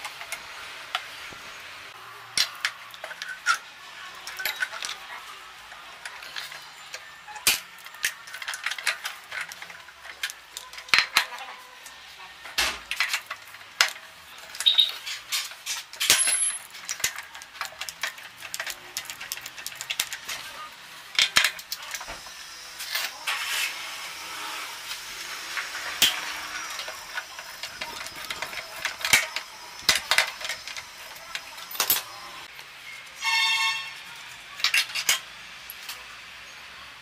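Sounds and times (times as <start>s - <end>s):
hand tools clinking on metal: 12.9s - 22.2s, 25.6s - 32.4s.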